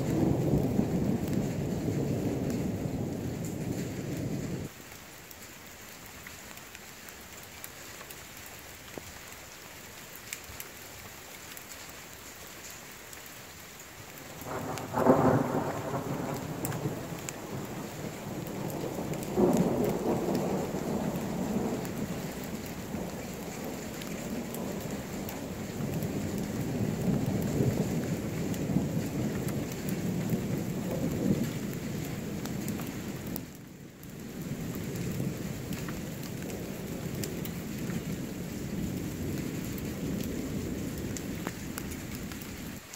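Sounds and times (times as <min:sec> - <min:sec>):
thunder clap and rumble: 0:00.0 - 0:04.7, 0:14.3 - 0:42.5
steady rain hissing: 0:00.0 - 0:42.9.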